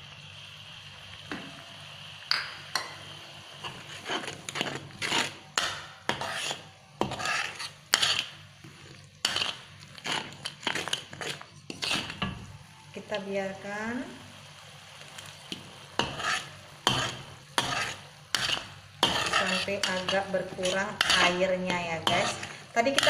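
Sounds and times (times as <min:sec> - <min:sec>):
paste frying in oil: 0:00.0 - 0:23.0
metal spatula scraping pan: 0:03.6 - 0:12.4, 0:16.0 - 0:23.0.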